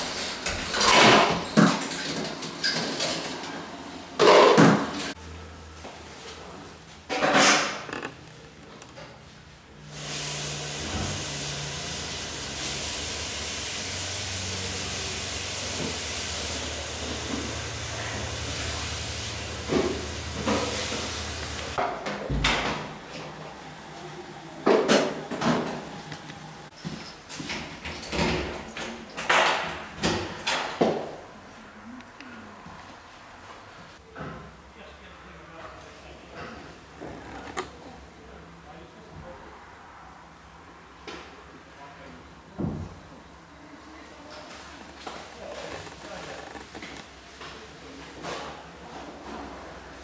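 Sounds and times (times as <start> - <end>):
dishes clattering: 4.2 - 5.1.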